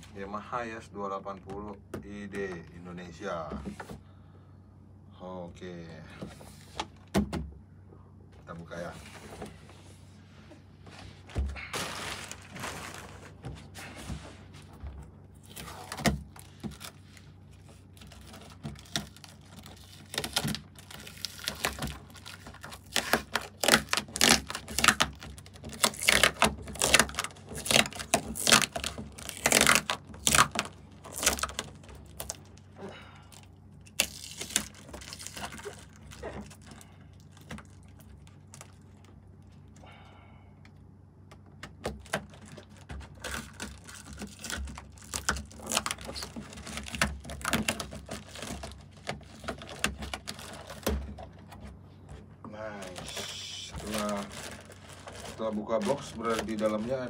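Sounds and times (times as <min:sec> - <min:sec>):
cardboard crackling and scraping: 0:08.7 - 0:32.6, 0:41.9 - 0:57.0.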